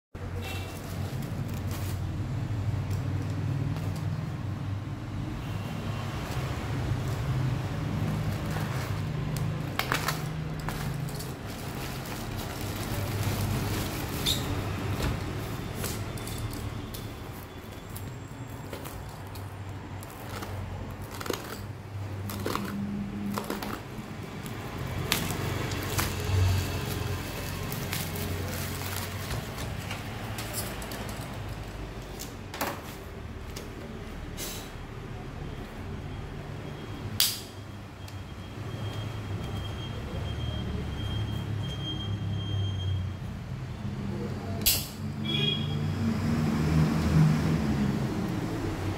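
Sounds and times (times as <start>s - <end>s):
plastic crinkling and rustling: 0.3s - 4.3s, 6.3s - 33.8s.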